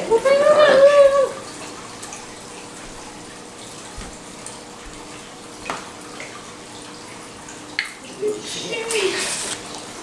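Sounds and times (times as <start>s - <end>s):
watery hiss from pan: 8.9s - 9.6s.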